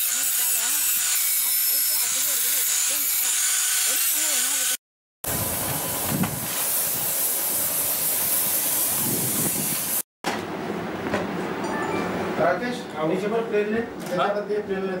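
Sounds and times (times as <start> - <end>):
angle grinder on iron: 0.0 - 4.8
paint spray gun hissing: 3.9 - 10.0.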